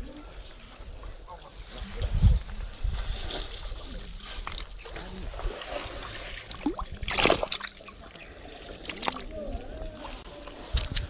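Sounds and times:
river water splashing and sloshing: 3.6 - 11.0.

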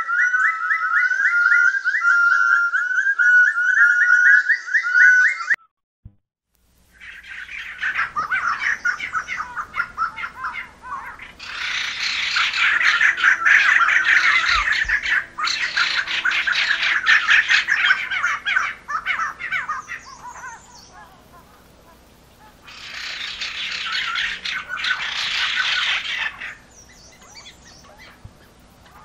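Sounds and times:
birds chattering and squawking: 6.9 - 29.0.

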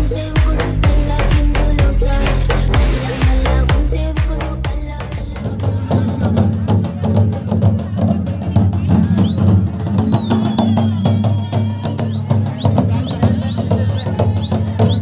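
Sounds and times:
barrel drums drumming: 0.0 - 15.0
high whistle: 9.2 - 15.0
rising whistle chirps: 9.2 - 15.0.

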